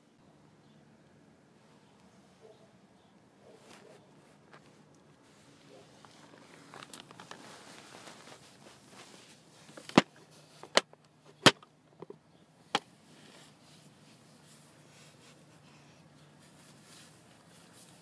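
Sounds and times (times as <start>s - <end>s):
phone handling rustle: 6.0s - 12.9s.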